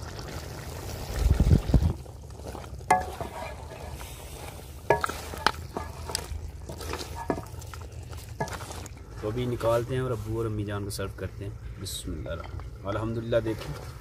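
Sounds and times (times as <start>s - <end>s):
steady sizzling: 2.4s - 11.0s
metal spoon clinking pot: 2.9s - 4.0s, 4.9s - 7.6s.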